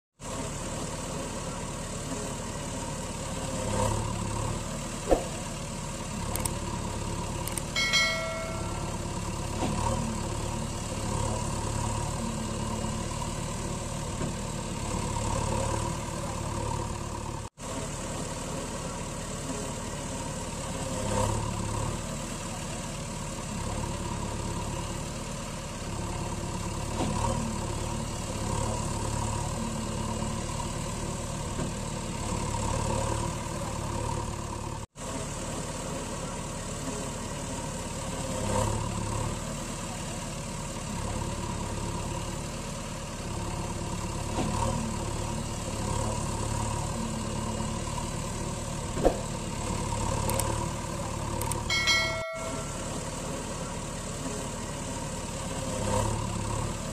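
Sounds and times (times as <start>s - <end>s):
truck engine idling: 0.2s - 56.9s
short pitched tone: 7.8s - 9.1s, 51.7s - 53.3s.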